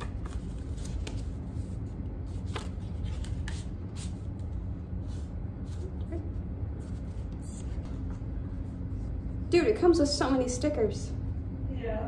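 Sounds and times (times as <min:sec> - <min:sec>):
paper and card rustling: 0:00.0 - 0:08.2
steady low hum: 0:00.0 - 0:12.0.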